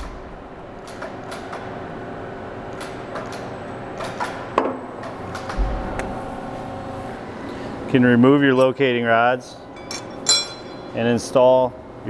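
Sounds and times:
low thud: 5.6 - 6.1.

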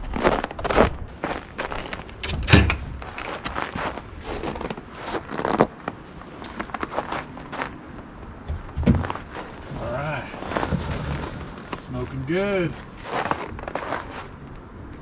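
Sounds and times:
footsteps in snow: 0.0 - 2.2, 3.0 - 8.1, 9.0 - 14.4
heavy thump: 8.5 - 9.2.

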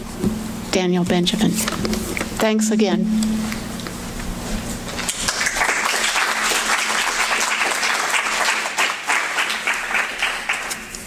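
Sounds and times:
audience applause: 5.0 - 11.0.

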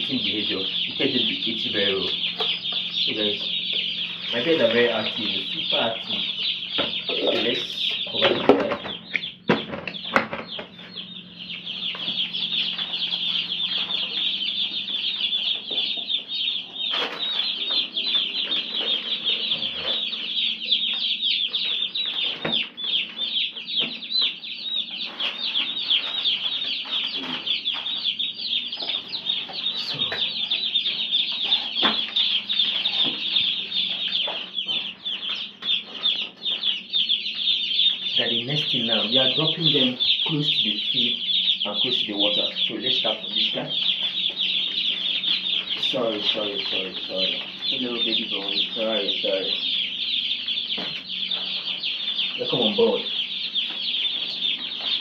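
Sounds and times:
plastic feeders knocking: 0.0 - 10.8
chicks peeping: 0.0 - 55.0.

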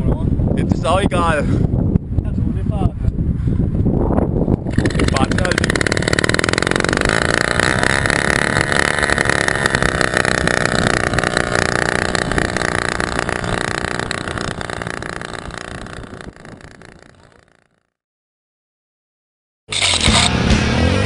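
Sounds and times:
moped engine idling fast: 4.6 - 17.8.

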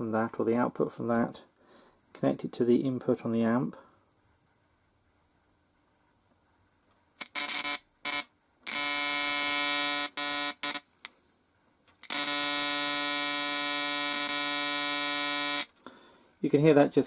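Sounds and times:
buzzy square-wave tone: 7.2 - 10.9, 12.0 - 15.7.

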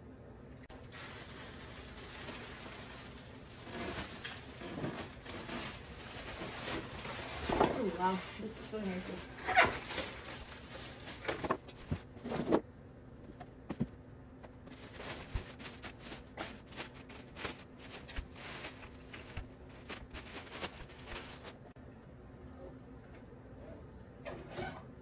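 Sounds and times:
plastic wrap crinkling: 0.7 - 12.6, 14.5 - 21.8.

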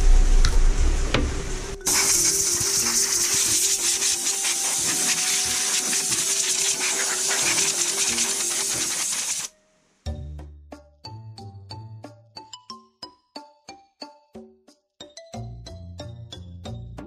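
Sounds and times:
light background music: 0.1 - 17.0
wire brush scraping metal: 1.9 - 9.5.

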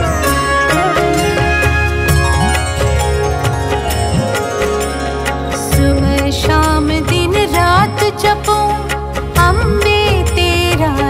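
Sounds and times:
percussion and instruments: 0.0 - 11.0
woman singing: 5.5 - 11.0.

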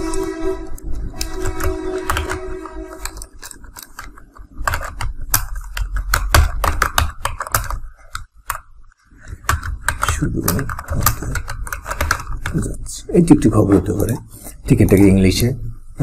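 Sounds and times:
typing on computer keyboard: 1.2 - 12.7.

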